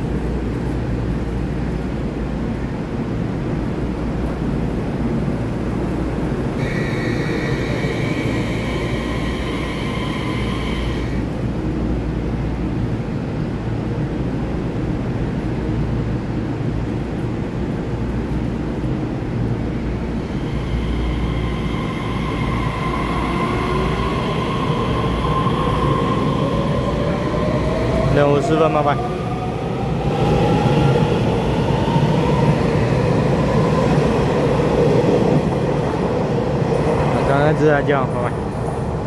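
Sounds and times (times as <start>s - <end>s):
train low rumble: 0.0s - 39.0s
train motor whine rising: 6.6s - 11.3s, 20.2s - 27.2s
steady high tone: 6.6s - 11.4s, 20.2s - 28.2s.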